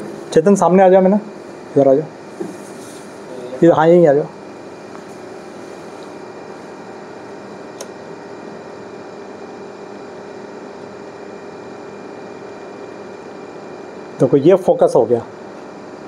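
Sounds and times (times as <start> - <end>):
air conditioning hum: 0.0 - 16.0
sharp click: 7.7 - 8.0.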